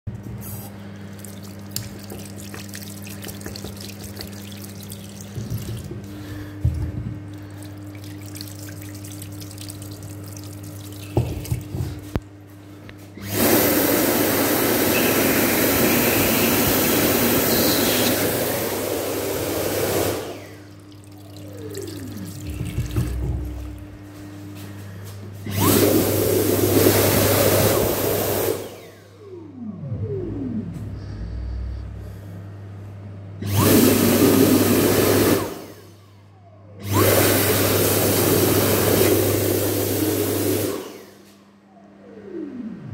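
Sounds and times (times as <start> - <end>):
hand dryer blowing: 0.2 - 12.2, 13.1 - 24.8, 25.4 - 29.0, 33.4 - 35.9, 36.8 - 41.4
sink tap running: 0.2 - 12.3, 14.6 - 24.1.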